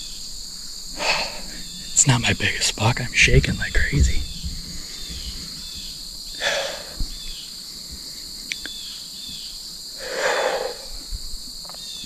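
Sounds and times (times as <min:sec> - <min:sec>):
crickets chirping: 0:00.0 - 0:12.0
breathy exhale: 0:00.9 - 0:01.7, 0:06.3 - 0:08.5, 0:09.9 - 0:11.2.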